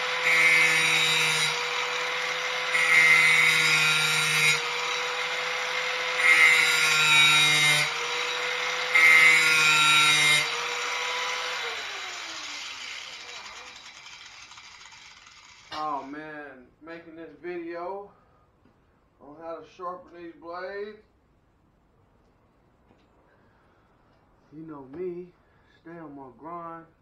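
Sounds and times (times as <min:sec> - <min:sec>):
angle grinder grinding steel: 0:00.0 - 0:16.1
grinder motor whine: 0:10.4 - 0:15.8.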